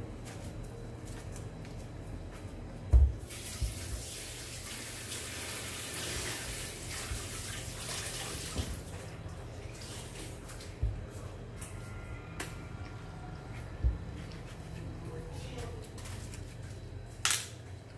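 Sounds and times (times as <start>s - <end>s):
water running from a tap: 3.2s - 9.1s.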